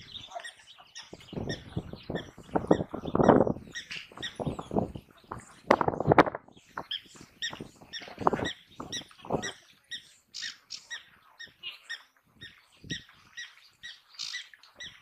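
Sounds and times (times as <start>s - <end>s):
wild dogs twittering: 0.0s - 5.4s, 6.8s - 9.7s.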